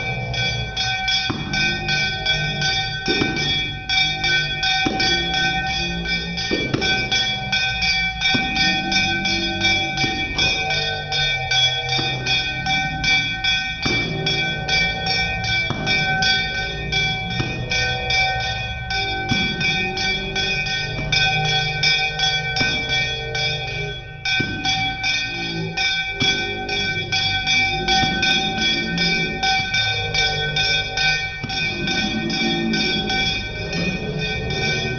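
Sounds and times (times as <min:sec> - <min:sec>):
hand bell ringing rapidly: 0:00.0 - 0:34.9.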